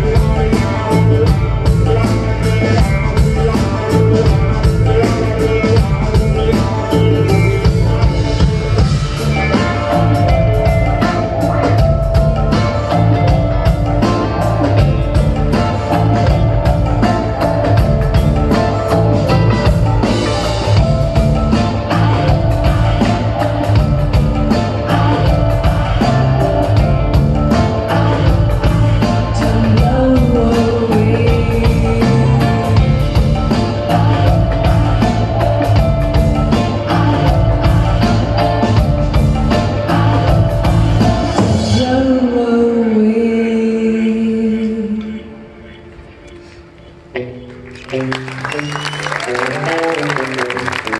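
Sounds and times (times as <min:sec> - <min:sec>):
live rock band playing: 0:00.0 - 0:43.6, 0:46.6 - 0:50.9
woman singing lead vocal: 0:21.5 - 0:38.3, 0:39.5 - 0:45.6.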